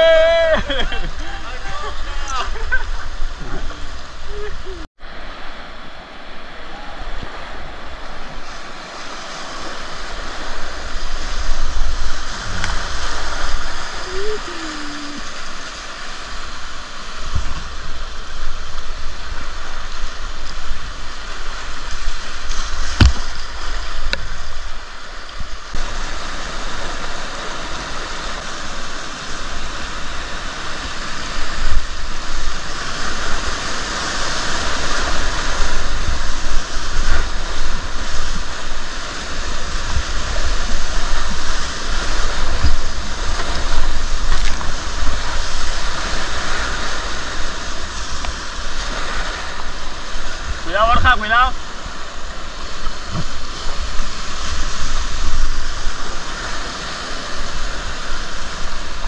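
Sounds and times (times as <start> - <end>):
rushing river water: 0.0 - 59.0
low thumps: 22.9 - 23.6.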